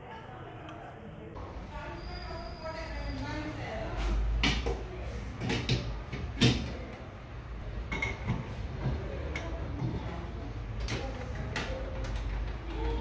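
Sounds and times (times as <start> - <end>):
metal bowl clanks and knocks: 7.8 - 10.1.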